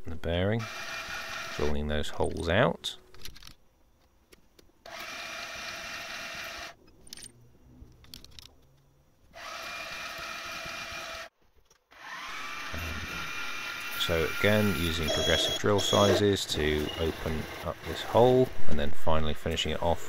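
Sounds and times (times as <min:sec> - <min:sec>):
drill whirring into metal plate: 0:00.6 - 0:01.6, 0:04.9 - 0:06.8, 0:09.4 - 0:11.3, 0:11.9 - 0:16.0.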